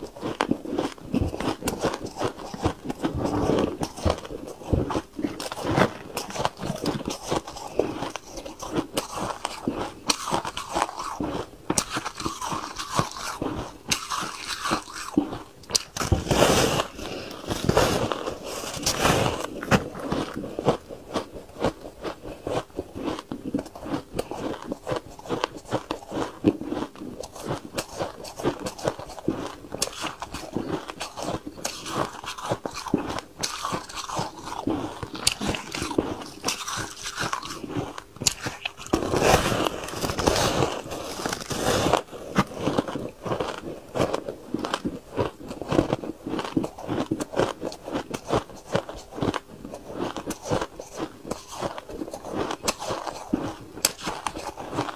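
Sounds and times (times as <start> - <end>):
chewing crunchy ice: 0.0 - 54.9.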